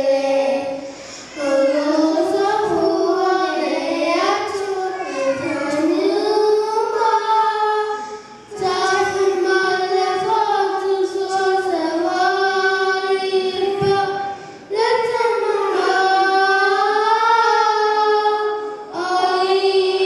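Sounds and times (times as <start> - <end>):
children singing into microphones: 0.0 - 20.0.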